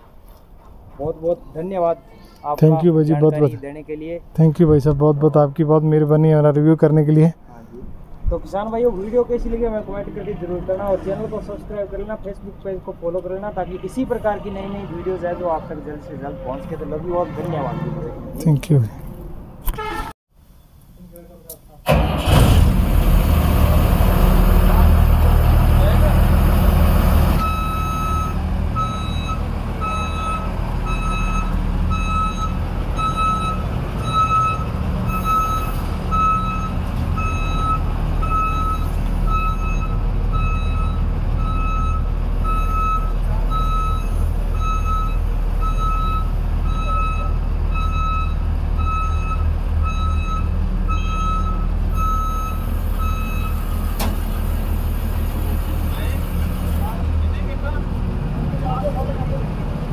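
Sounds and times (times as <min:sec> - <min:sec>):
diesel engine running: 0:21.9 - 0:59.9
reversing alarm beeps: 0:27.4 - 0:53.7.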